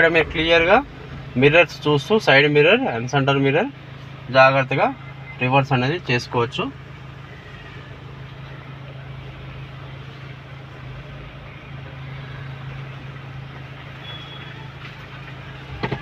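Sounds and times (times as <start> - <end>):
car engine running inside cabin: 0.0 - 16.0.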